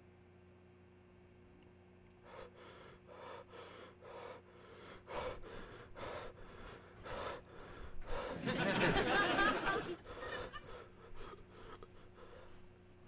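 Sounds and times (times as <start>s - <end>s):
man gasping heavily: 2.3s - 8.5s.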